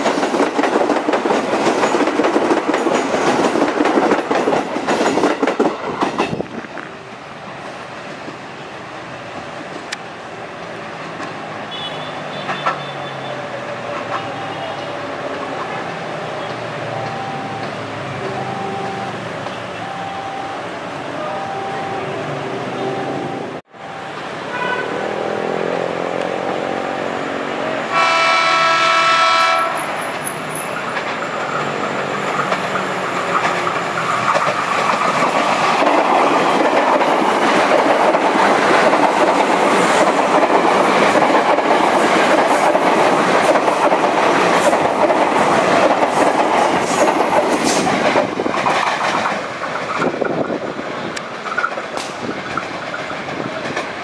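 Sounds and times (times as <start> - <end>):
wheels clacking over rail joints: 0.0 - 6.9, 29.7 - 54.0
train passing with rumble: 0.0 - 54.0
train horn blast: 24.4 - 26.4, 27.8 - 30.1.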